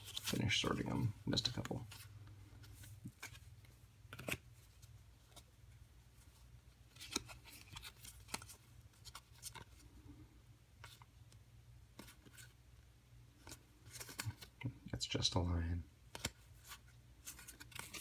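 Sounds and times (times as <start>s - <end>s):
cards clicking and snapping: 4.1s - 4.4s, 6.9s - 9.7s, 13.4s - 14.6s, 16.1s - 16.4s, 17.3s - 18.0s.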